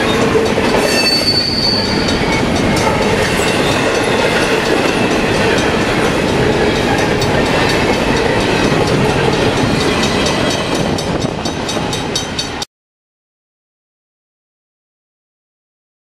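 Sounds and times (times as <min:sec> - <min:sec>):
wheels clacking over rail joints: 0:00.0 - 0:12.6
train wheels rumbling on rail: 0:00.0 - 0:12.7.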